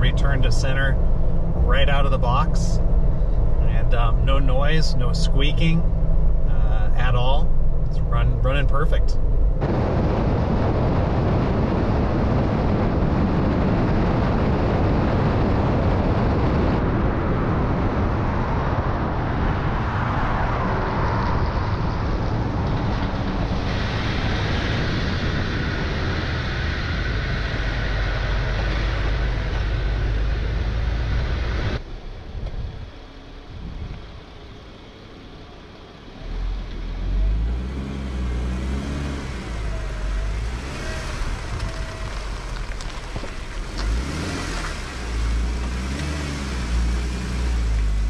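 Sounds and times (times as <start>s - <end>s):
wind rush: 0.0s - 34.5s, 38.4s - 48.0s
tyre roar on pavement: 0.0s - 48.0s
wind buffeting camera: 7.4s - 34.8s, 38.6s - 48.0s.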